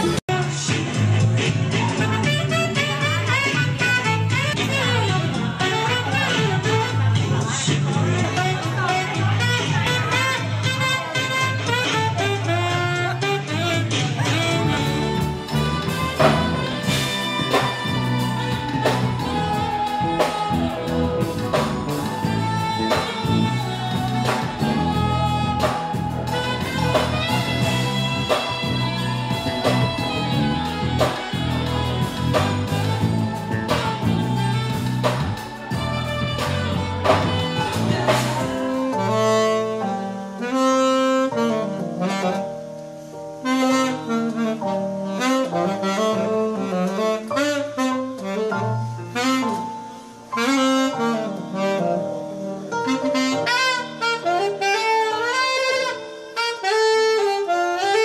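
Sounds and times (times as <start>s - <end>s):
deep bass: 0.0s - 39.8s
drum kit: 0.0s - 58.0s
saxophone melody: 0.0s - 58.0s.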